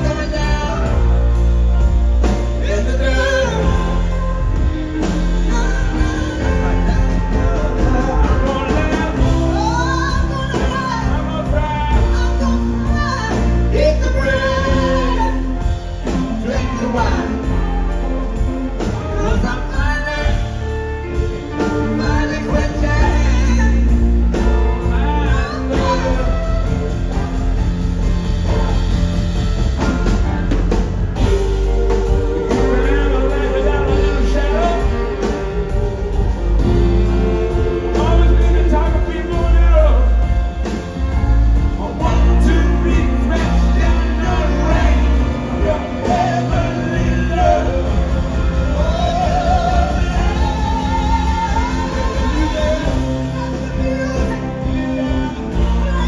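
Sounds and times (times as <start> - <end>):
person singing: 0.0 - 29.0, 31.2 - 56.0
live rock band playing: 0.0 - 56.0.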